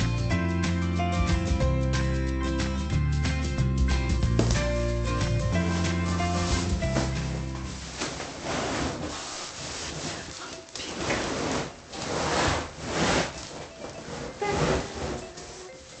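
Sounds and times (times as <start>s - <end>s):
cardboard and plastic scraping: 5.6s - 16.0s.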